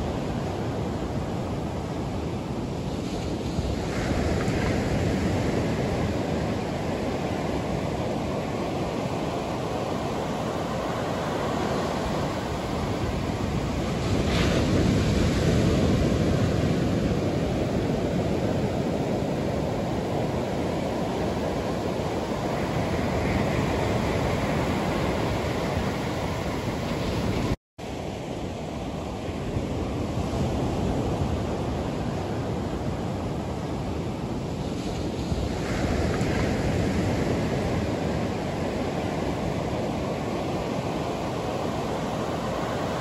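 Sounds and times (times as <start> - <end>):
surf washing up beach: 0.0 - 43.0
wind noise on microphone: 0.0 - 43.0.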